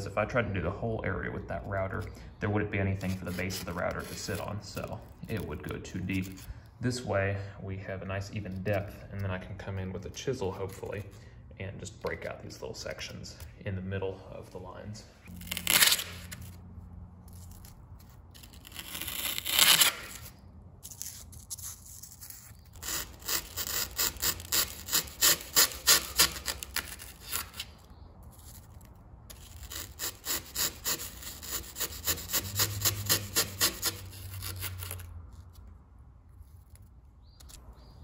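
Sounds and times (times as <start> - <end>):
chisel scraping foam: 1.3 - 6.5, 8.2 - 11.2, 17.3 - 35.7.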